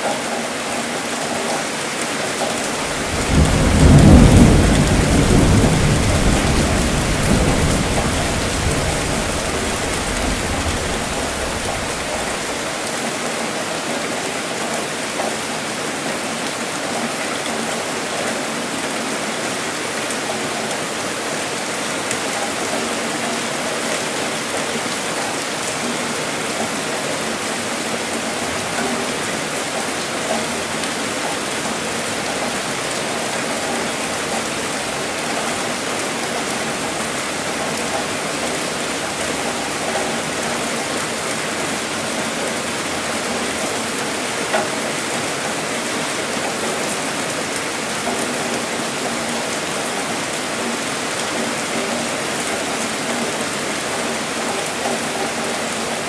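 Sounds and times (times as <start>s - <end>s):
steady rainfall: 0.0s - 56.0s
thunderclap with low rumble: 2.8s - 12.6s.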